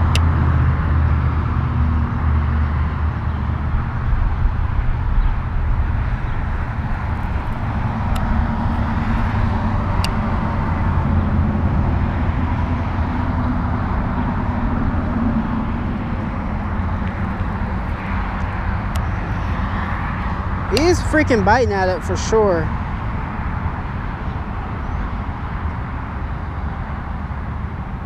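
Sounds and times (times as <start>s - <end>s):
wind buffeting microphone: 3.4s - 25.8s.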